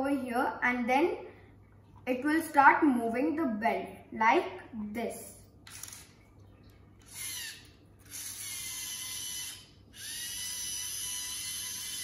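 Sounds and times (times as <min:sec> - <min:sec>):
toy robot motor whirring: 0:05.6 - 0:06.2, 0:07.0 - 0:12.0.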